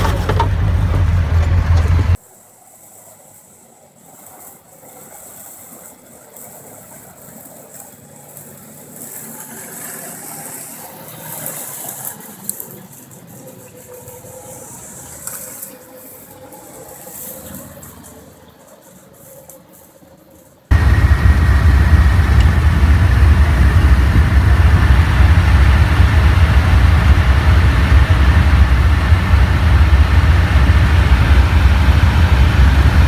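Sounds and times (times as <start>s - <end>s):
distant vehicle engine running: 0.0s - 2.2s, 20.7s - 33.0s.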